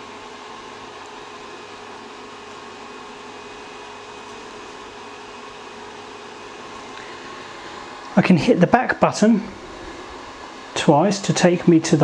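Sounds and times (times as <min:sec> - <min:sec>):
cooling fan whirring: 0:00.0 - 0:12.0.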